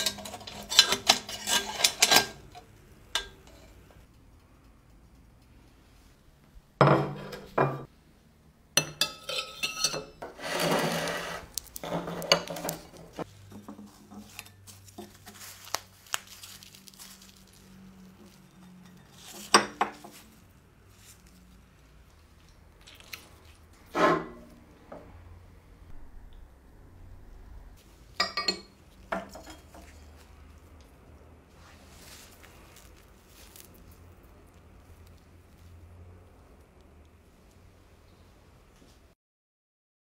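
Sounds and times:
metal utensils clinking on plate: 0.0 - 3.8, 8.8 - 11.2, 28.2 - 30.1.

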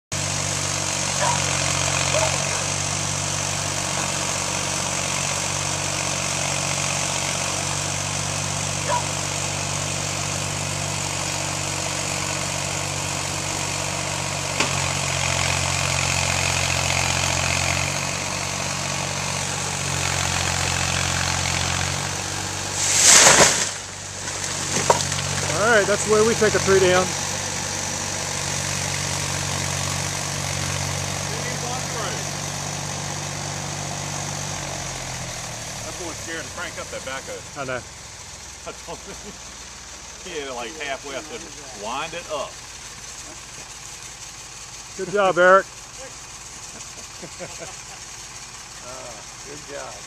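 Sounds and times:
diesel engine working under load: 0.1 - 50.0
loud rushing crash: 22.7 - 23.9.

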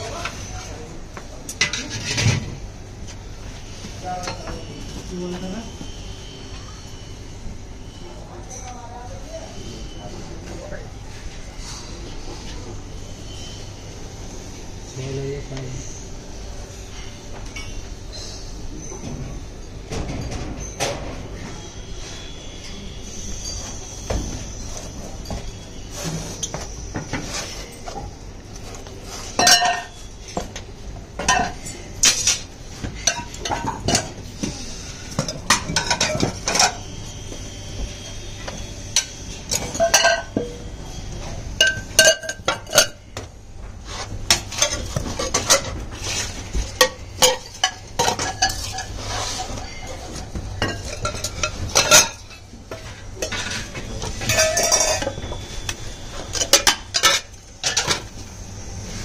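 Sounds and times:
metal clanks and clinks: 29.4 - 30.5, 39.0 - 40.6, 50.6 - 55.4.

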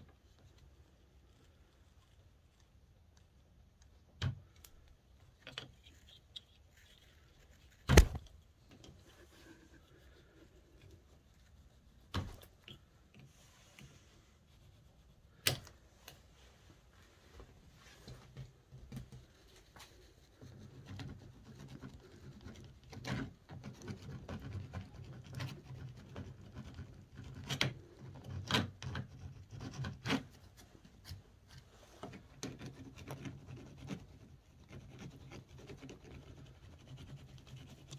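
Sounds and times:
rubbing and scraping of rubber grip: 0.0 - 37.9.

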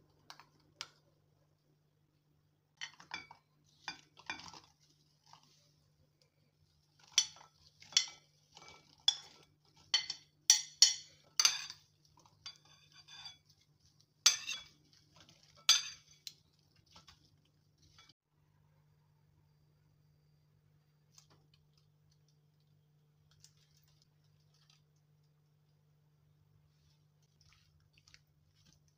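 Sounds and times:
metal spoons clinking on ceramic bowl: 7.1 - 13.4, 14.2 - 14.7, 15.6 - 16.3.

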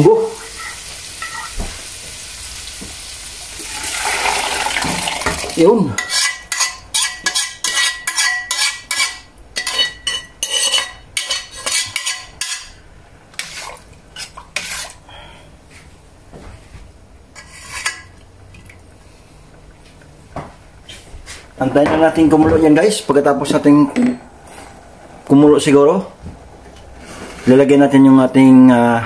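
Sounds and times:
metal spoon clinking in pot: 6.0 - 12.8.

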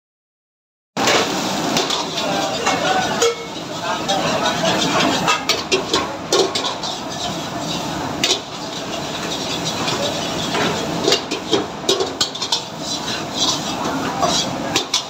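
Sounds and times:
metal ladle scraping steel pan: 1.0 - 15.0.

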